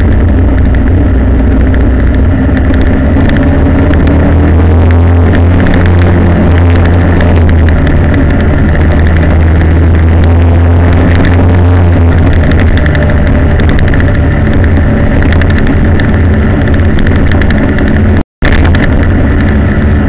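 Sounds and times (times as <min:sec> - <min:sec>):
vehicle engine droning: 0:00.0 - 0:20.0.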